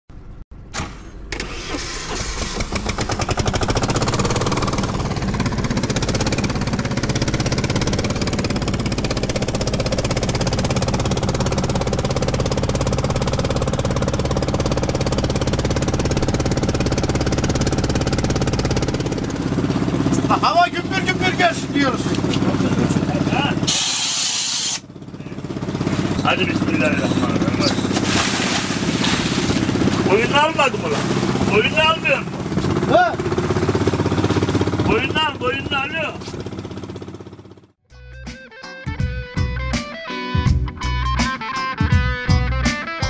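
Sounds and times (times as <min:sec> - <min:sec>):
engine starting and running: 0:00.1 - 0:37.8.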